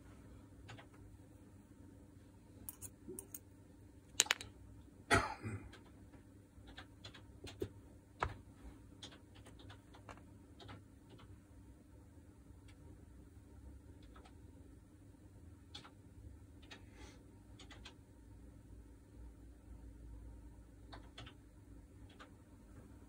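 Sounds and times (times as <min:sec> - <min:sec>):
small metal parts clinking: 0:02.7 - 0:03.4, 0:04.2 - 0:04.5.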